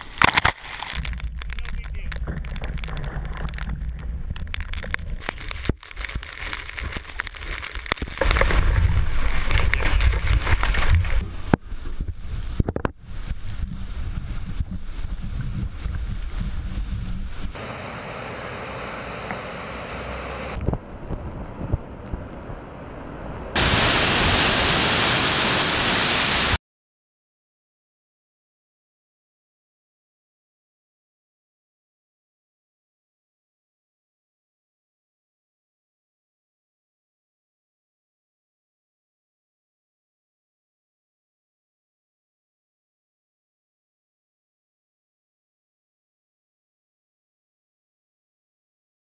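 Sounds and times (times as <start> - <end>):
surf crashing: 5.6 - 11.5, 17.6 - 20.6, 23.5 - 26.6
wind buffeting microphone: 8.4 - 17.6, 20.5 - 24.0
strong wind gusting: 8.4 - 26.6
heavy rain hiss: 16.4 - 20.6, 23.6 - 26.6.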